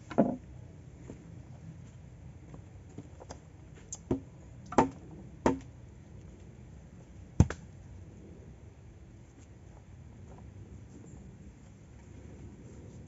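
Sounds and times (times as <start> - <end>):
wooden poles knocking: 0.0 - 0.4.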